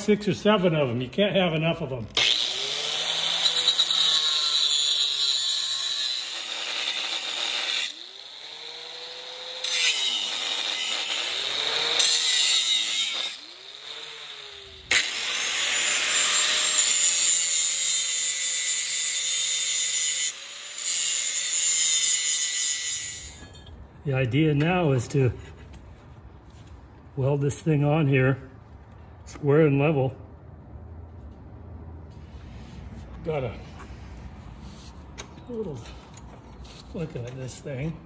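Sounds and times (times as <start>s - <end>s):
angle grinder cutting steel: 2.2s - 23.7s.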